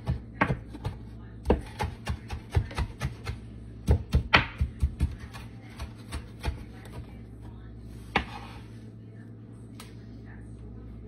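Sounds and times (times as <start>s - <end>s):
knife chopping on wooden board: 0.0s - 7.1s, 8.1s - 8.6s.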